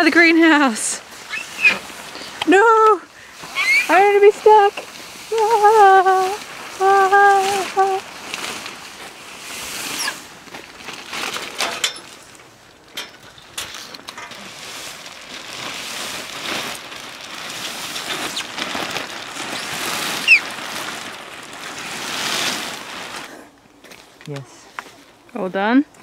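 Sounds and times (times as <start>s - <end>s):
plastic film crinkling: 0.0s - 24.3s
sharp squeak: 1.3s - 1.8s, 3.6s - 3.9s.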